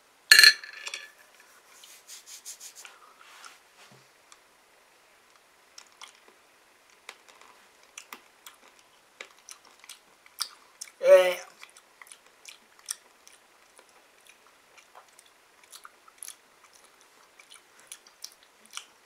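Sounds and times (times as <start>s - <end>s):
faint chewing: 5.3s - 19.0s.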